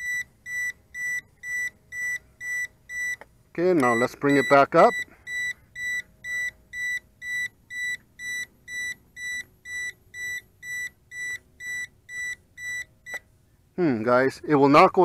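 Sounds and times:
short high beeps: 3.8s - 13.2s.

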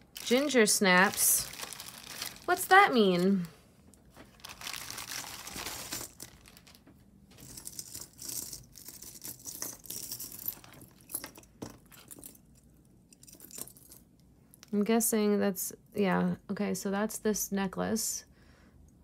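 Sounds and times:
packaging crinkling and rustling: 0.0s - 9.5s.

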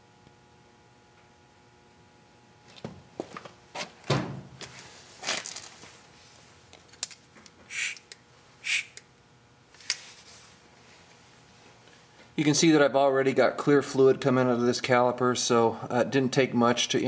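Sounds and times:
workshop clicks and knocks: 2.8s - 4.8s
short hisses: 7.7s - 8.0s, 8.6s - 9.0s.

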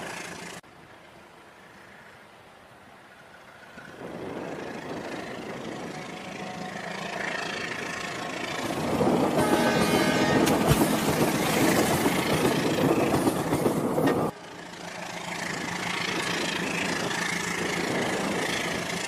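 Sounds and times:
toy train horn: 9.4s - 10.7s.

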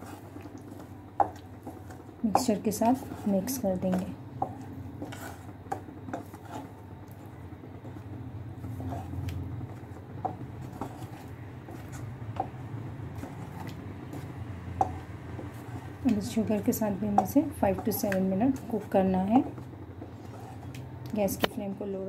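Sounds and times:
steady low hum: 0.0s - 22.0s
spoon scraping a saucepan: 10.2s - 12.6s, 19.5s - 20.8s.

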